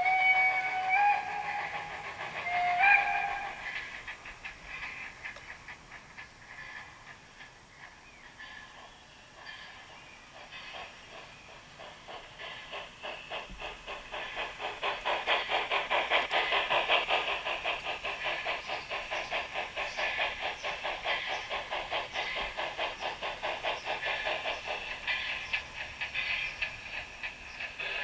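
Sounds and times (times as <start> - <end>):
steam locomotive chuffs with hiss: 0.0 - 28.0.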